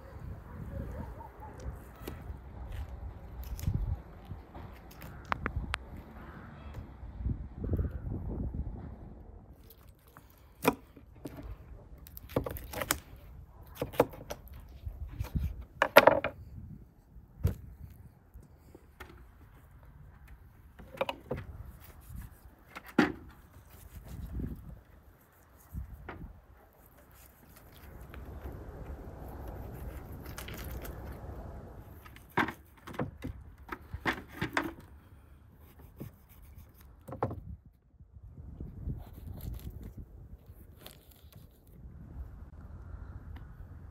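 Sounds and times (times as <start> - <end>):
knife cutting and scraping meat: 26.8 - 28.2, 35.6 - 37.0, 38.9 - 41.7.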